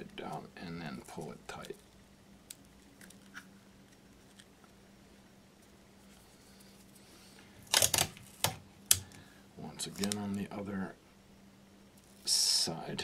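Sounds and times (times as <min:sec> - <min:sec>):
tape crackling: 0:00.0 - 0:04.8, 0:05.6 - 0:10.6.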